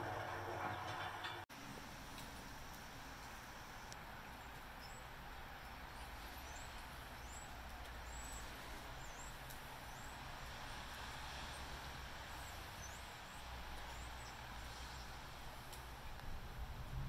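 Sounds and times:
outdoor hiss: 0.0 - 17.0
small birds chirping: 2.6 - 16.4
low rumble: 16.4 - 17.0.

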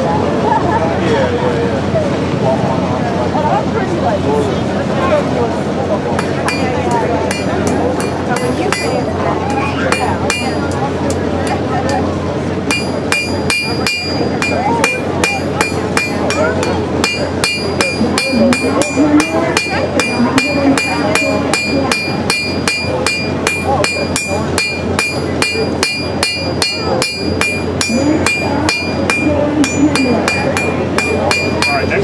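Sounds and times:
anvil ringing: 6.2 - 9.1, 9.9 - 10.8, 12.7 - 32.0
hammer striking metal on anvil: 6.2 - 12.0, 12.7 - 32.0.

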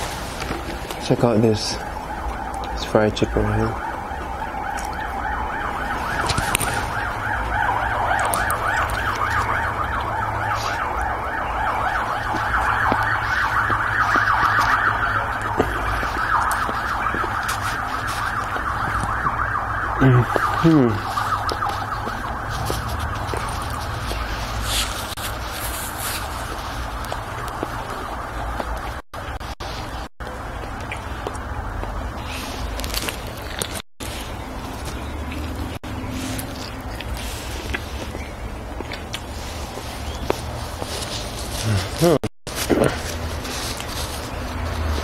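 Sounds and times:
siren warbling yelp: 1.1 - 25.2, 26.5 - 30.0
eating clicks: 6.2 - 11.1.

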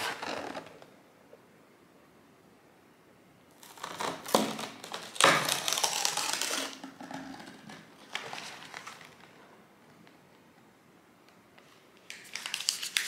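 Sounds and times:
paperboard ripping: 0.0 - 0.8, 3.6 - 6.8.

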